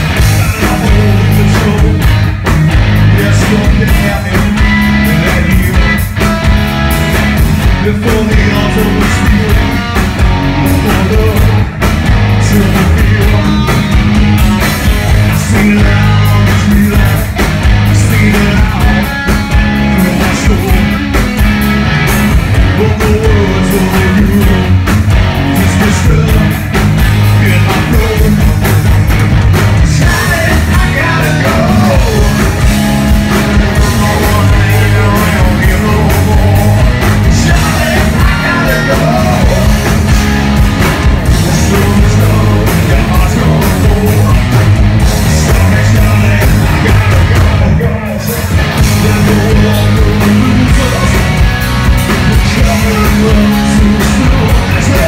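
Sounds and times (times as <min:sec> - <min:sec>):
hard rock band playing: 0:00.0 - 0:55.0
man singing into microphone: 0:00.4 - 0:02.1, 0:03.1 - 0:06.0, 0:07.8 - 0:11.6, 0:12.4 - 0:14.1, 0:15.3 - 0:17.3, 0:17.9 - 0:19.2, 0:19.9 - 0:21.0, 0:22.7 - 0:24.8, 0:25.7 - 0:26.5, 0:27.4 - 0:28.5, 0:29.9 - 0:32.4, 0:33.7 - 0:39.8, 0:41.4 - 0:44.4, 0:45.4 - 0:51.3, 0:52.4 - 0:55.0.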